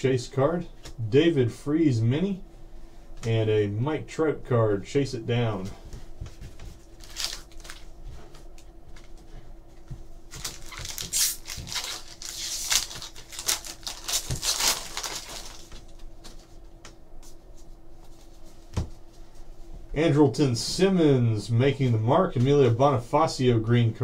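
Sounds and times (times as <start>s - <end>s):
handling of cards: 5.6s - 18.9s
foil wrapper crinkling and tearing: 7.0s - 7.9s, 10.3s - 16.1s.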